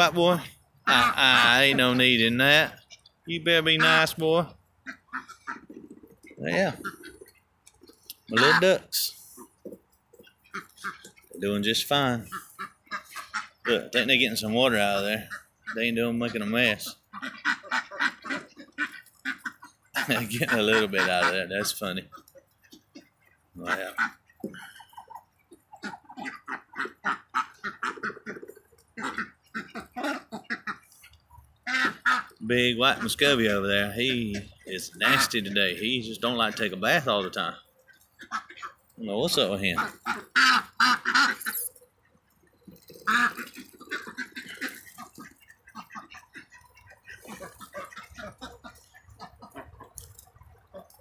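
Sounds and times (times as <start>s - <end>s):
ducks quacking: 0.0s - 51.0s
duck call: 8.3s - 8.8s.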